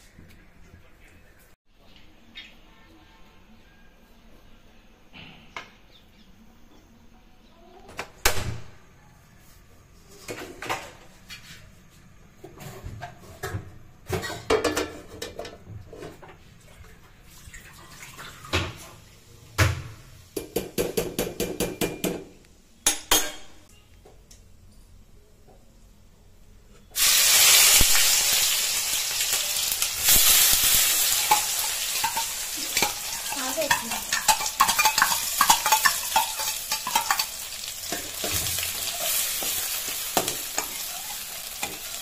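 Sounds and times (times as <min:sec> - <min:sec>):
steel kitchenware clattering: 0:14.1 - 0:16.2, 0:22.8 - 0:23.7, 0:31.0 - 0:42.0.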